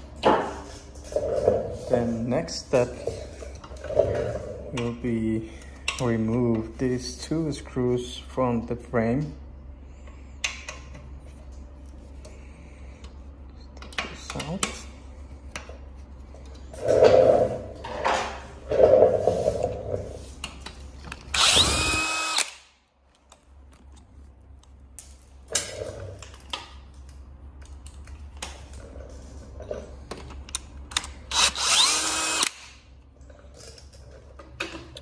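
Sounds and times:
cordless drill motor whirring: 0:21.3 - 0:22.7, 0:31.3 - 0:32.8.

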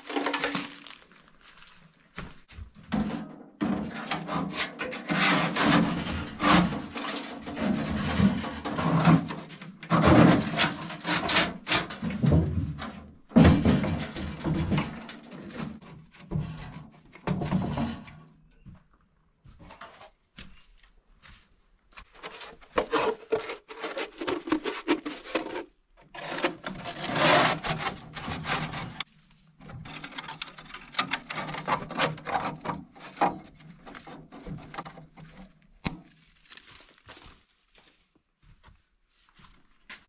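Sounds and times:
metal pipe scraping against stone: 0:22.7 - 0:36.0.

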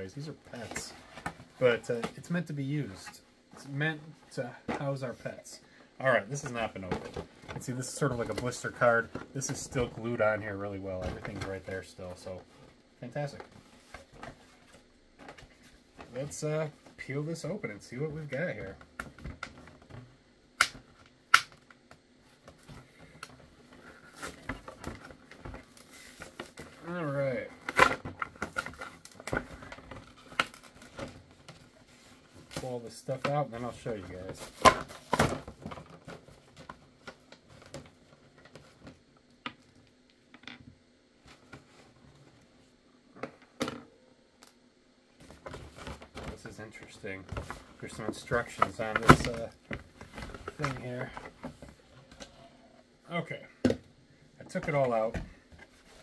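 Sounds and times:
sharp plastic snaps: 0:20.6 - 0:21.8.

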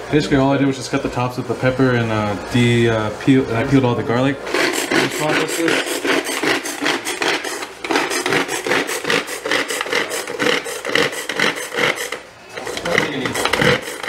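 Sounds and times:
pull-cord food processor whirring: 0:04.4 - 0:14.0.

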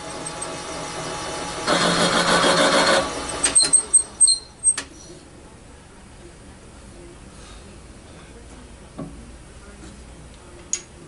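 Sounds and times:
short high squeaks: 0:03.5 - 0:05.2.

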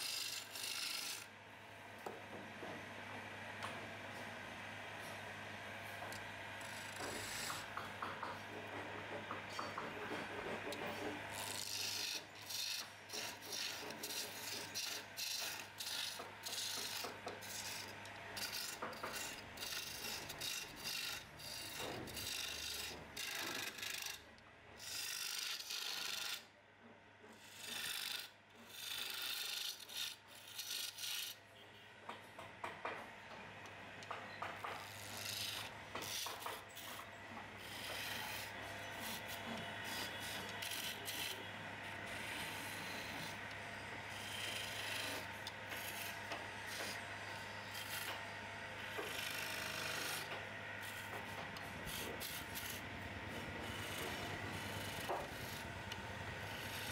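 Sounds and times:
lathe tool cutting wood: 0:00.0 - 0:01.2, 0:06.6 - 0:24.2, 0:24.8 - 0:26.4, 0:27.4 - 0:31.3, 0:34.4 - 0:56.9
lathe motor hum: 0:00.1 - 0:01.2, 0:03.3 - 0:24.2, 0:27.4 - 0:31.3, 0:33.1 - 0:56.9.

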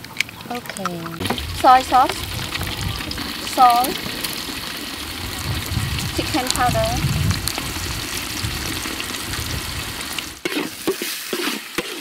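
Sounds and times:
eggs sizzling in oil: 0:00.6 - 0:12.0
metal spatula scraping wok: 0:10.4 - 0:12.0.

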